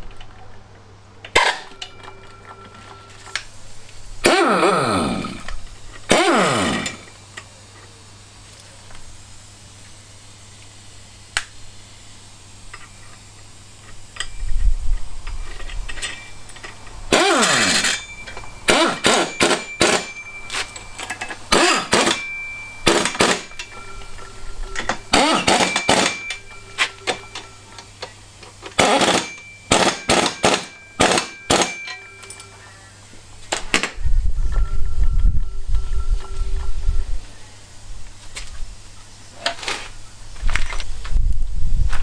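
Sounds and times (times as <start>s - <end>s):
impact wrench bursts: 1.3s - 2.1s, 4.2s - 7.5s, 15.3s - 32.3s.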